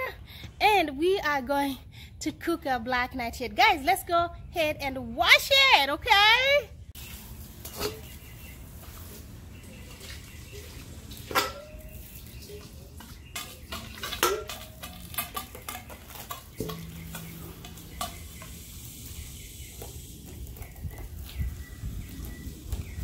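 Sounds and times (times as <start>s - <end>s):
metal bowl knocking: 11.3s - 12.0s, 13.0s - 18.7s.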